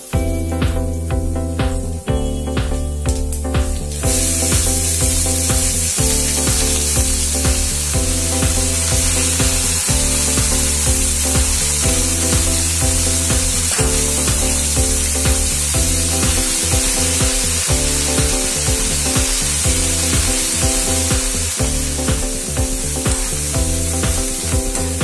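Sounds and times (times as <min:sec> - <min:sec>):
background music with steady beat: 0:00.0 - 0:25.0
vegetables sizzling in hot oil: 0:03.9 - 0:25.0.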